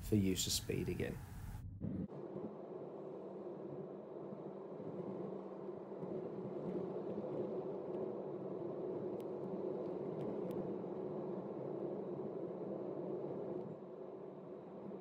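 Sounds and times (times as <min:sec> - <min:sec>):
car engine and road noise: 0:00.0 - 0:02.9
faint clicks: 0:09.0 - 0:10.7.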